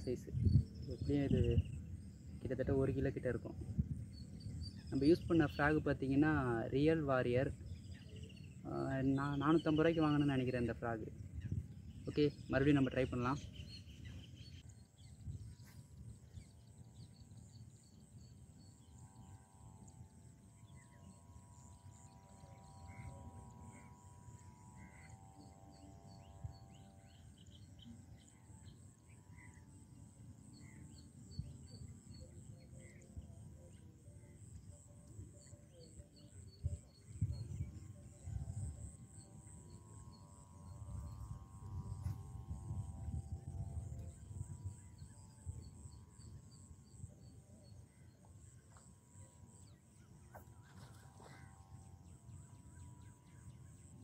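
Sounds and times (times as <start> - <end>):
wind rumble on microphone: 0.0 - 6.9, 11.0 - 17.4, 36.3 - 47.2
long held drone: 0.0 - 54.0
steady high buzz: 0.0 - 54.0.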